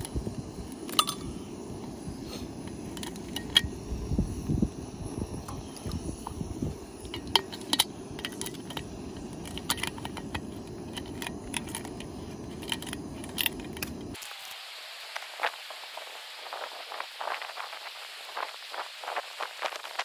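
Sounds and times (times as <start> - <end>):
gas stove low rumble: 0.0 - 14.2
metal pot clicking: 0.8 - 1.4, 2.9 - 3.7, 7.0 - 14.1.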